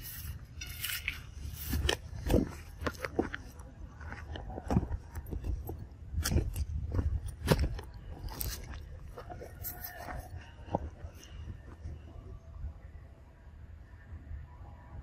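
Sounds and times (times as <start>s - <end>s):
footsteps on dry leaves and twigs: 0.0s - 12.0s
steady low rumble: 0.0s - 15.0s.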